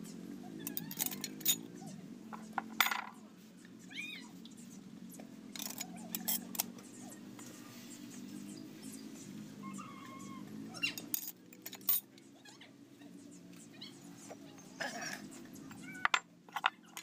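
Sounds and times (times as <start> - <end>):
steel parts clinking: 0.6 - 1.6, 2.4 - 3.2, 5.5 - 6.7, 11.0 - 12.0, 16.0 - 17.0.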